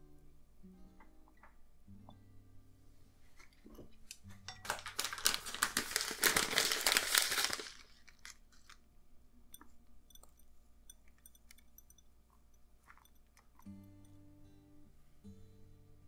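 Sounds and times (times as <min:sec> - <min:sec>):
dense crinkling and crackling: 0:03.3 - 0:08.8
faint scattered ticks: 0:09.5 - 0:14.4.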